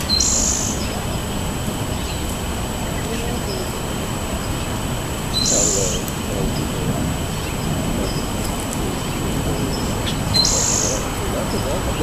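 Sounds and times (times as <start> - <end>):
outdoor background noise: 0.0 - 12.0
songbird short high call: 5.4 - 6.0.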